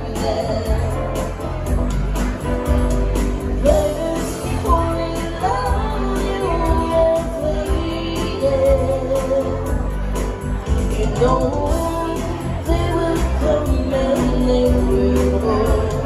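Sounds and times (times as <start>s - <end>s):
keyboard: 0.0s - 16.0s
woman singing pop song: 0.0s - 16.0s.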